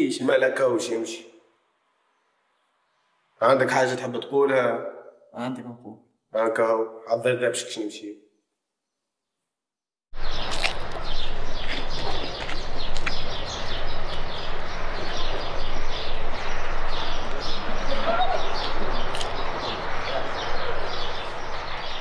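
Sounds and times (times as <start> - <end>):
birds chirping: 10.2 - 22.0.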